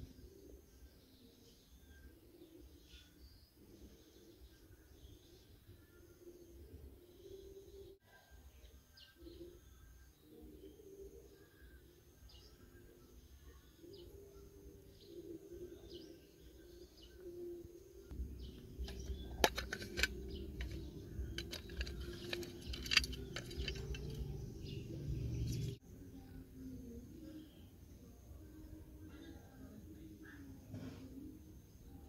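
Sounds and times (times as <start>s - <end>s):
birds chirping: 8.9s - 25.8s
metal tin clicks and taps: 18.9s - 24.3s.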